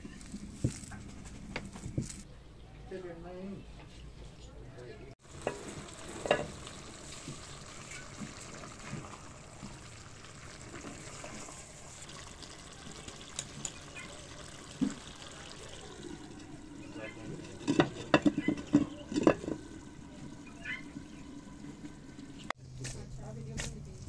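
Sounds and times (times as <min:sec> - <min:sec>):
faint sizzle: 0:05.2 - 0:22.6
metal spatula stirring in pot: 0:16.0 - 0:20.5.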